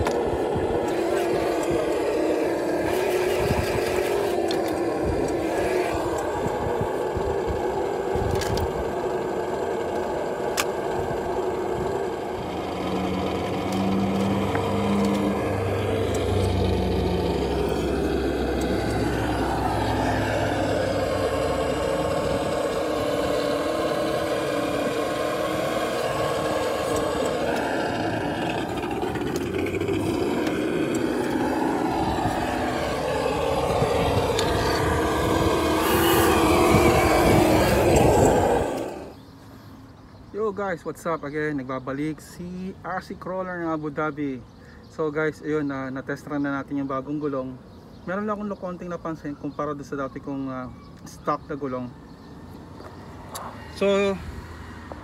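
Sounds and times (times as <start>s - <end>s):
toy car motor and gear whine: 0.0s - 39.6s.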